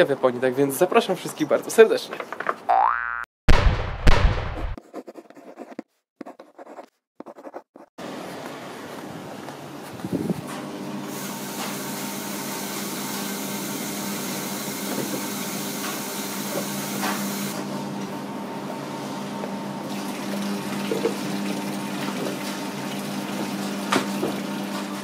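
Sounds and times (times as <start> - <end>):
hum of running machines: 8.0 - 25.0
water rushing into washing machine: 19.8 - 25.0.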